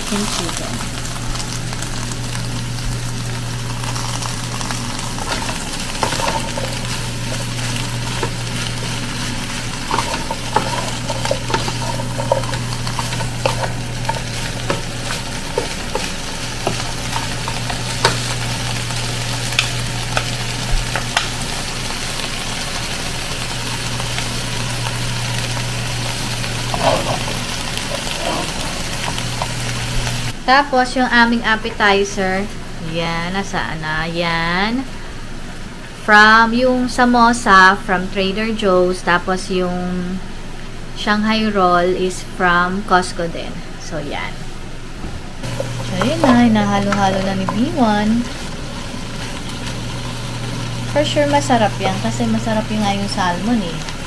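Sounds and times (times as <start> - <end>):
food sizzling in a wok: 0.0 - 38.3, 43.0 - 54.0
steady low hum: 0.0 - 54.0
spatula scraping and tapping pan: 9.7 - 18.4.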